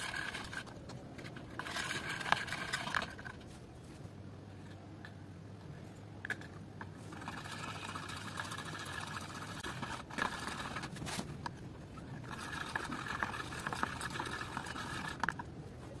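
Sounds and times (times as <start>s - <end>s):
palette knife scraping paint: 7.0s - 15.5s.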